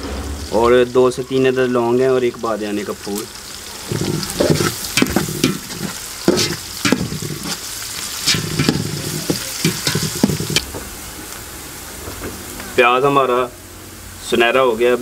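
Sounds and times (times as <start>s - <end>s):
onions and spices sizzling in oil: 0.0s - 15.0s
metal spoon scraping a pot: 3.9s - 10.7s.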